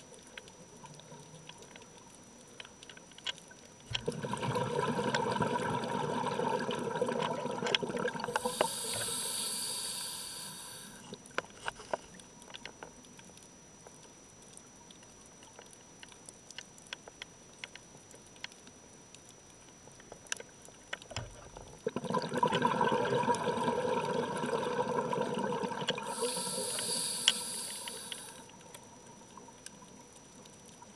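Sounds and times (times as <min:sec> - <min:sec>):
faint clicks and crackles: 0:00.0 - 0:04.2, 0:07.0 - 0:22.2, 0:25.2 - 0:30.9
scuba regulator breathing bubbles: 0:04.0 - 0:11.1, 0:22.0 - 0:28.5.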